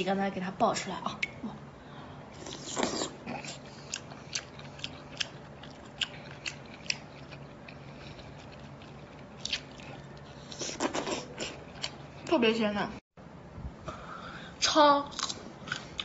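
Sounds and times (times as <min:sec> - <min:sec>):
chewing and biting food: 0:02.4 - 0:12.3.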